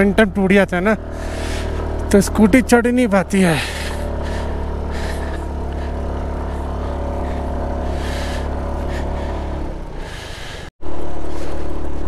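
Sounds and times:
scooter engine running: 0.0s - 12.0s
tyres on gravel: 0.0s - 12.0s.

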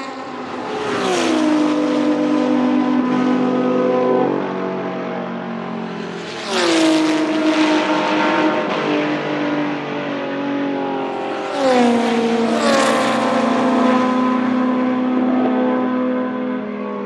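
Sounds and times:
race cars passing at full throttle: 0.0s - 17.0s.

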